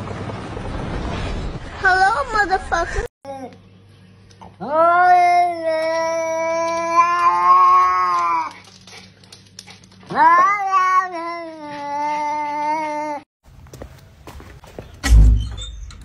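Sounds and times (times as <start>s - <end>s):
cat yowling: 4.6s - 8.5s, 10.1s - 13.2s.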